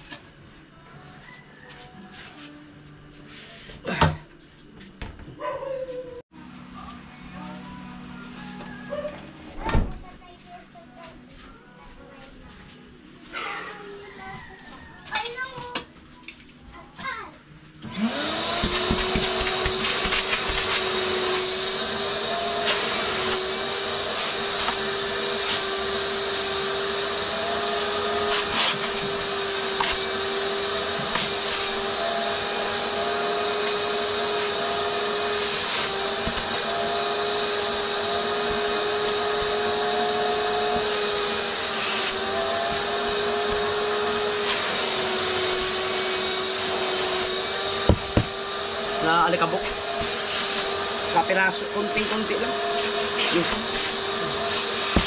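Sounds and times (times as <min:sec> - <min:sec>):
vacuum cleaner motor whine: 0:17.8 - 0:55.0.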